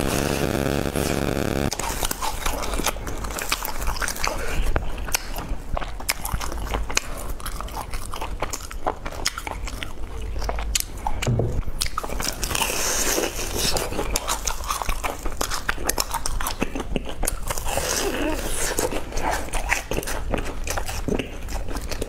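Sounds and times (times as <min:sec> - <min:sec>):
hissy crackling noise: 0:00.0 - 0:01.7.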